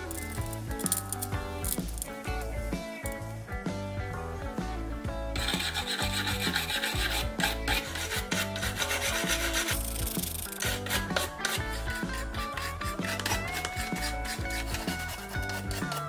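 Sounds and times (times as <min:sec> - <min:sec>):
background music: 0:00.0 - 0:16.0
wire brush scrubbing metal: 0:05.4 - 0:16.0.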